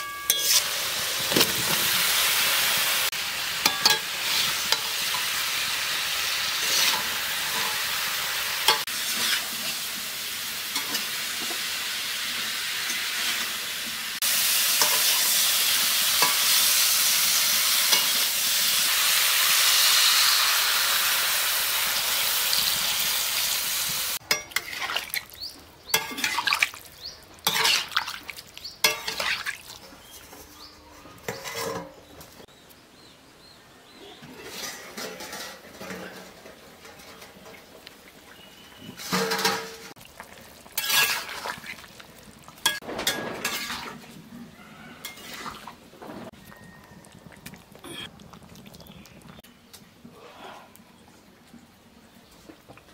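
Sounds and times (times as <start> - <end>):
vegetables sizzling in hot oil: 0.3 - 24.9, 38.4 - 44.0
wooden spatula scraping pan: 6.6 - 7.8.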